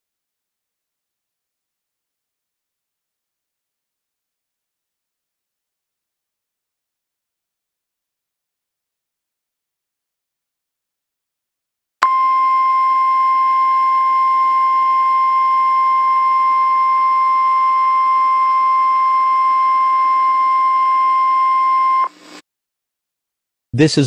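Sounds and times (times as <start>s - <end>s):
loud steady alert beep: 12.0s - 22.1s.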